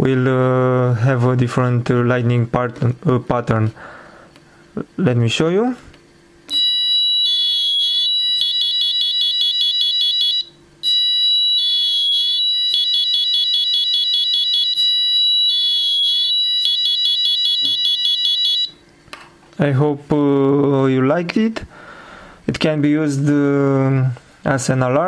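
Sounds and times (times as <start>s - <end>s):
shrill electronic siren alarm: 6.5s - 18.8s.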